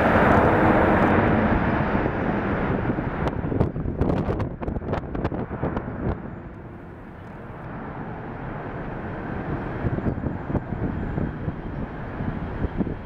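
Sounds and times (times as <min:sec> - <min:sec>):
jet engines roaring at takeoff: 0:00.0 - 0:13.0.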